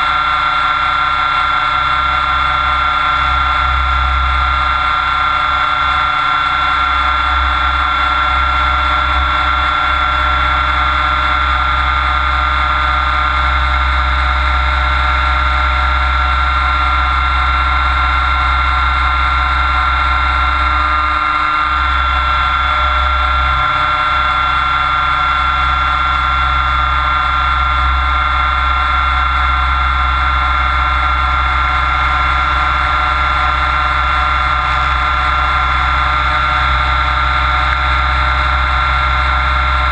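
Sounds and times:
rc helicopter motor whine: 0:00.0 - 0:39.9.

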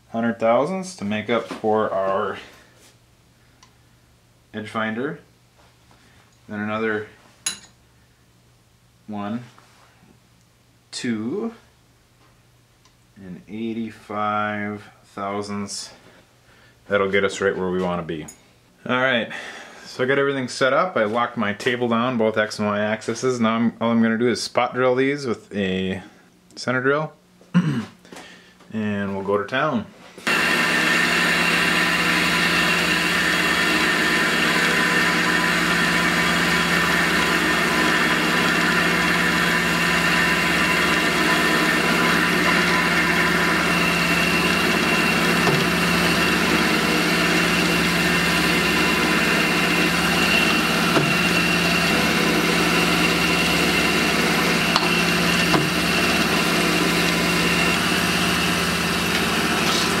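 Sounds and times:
milling machine running: 0:30.3 - 1:00.0.

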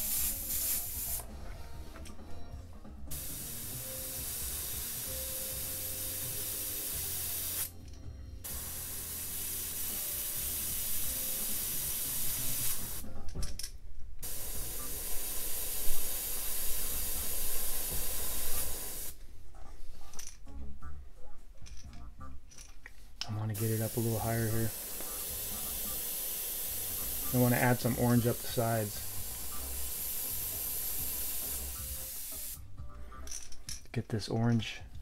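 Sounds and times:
airbrush spraying hiss: 0:00.0 - 0:01.4, 0:03.1 - 0:07.8, 0:08.4 - 0:13.1, 0:14.2 - 0:19.2, 0:23.6 - 0:32.6.

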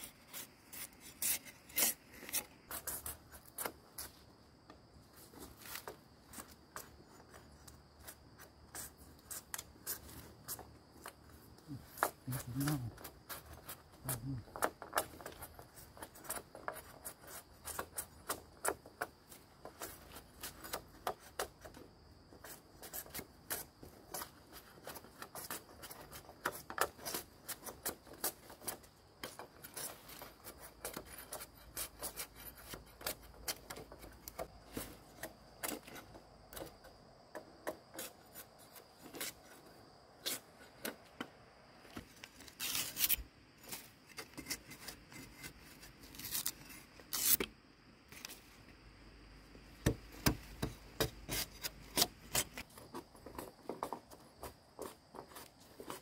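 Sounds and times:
scraping by hand: 0:00.0 - 0:04.2.

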